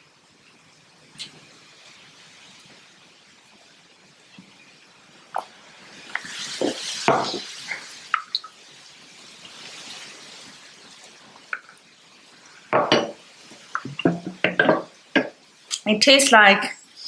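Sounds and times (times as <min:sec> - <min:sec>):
bottle and glass knocks and clinks: 0:12.8 - 0:13.2.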